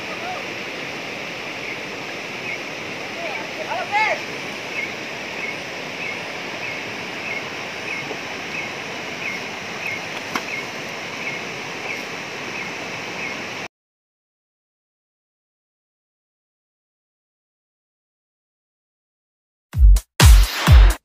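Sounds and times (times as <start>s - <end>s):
stream rushing over stones: 0.0s - 13.7s.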